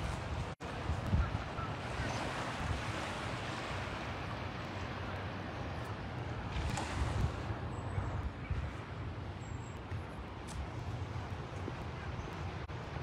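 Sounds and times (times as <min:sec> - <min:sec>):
wind buffeting microphone: 0:00.0 - 0:05.2, 0:06.1 - 0:09.2.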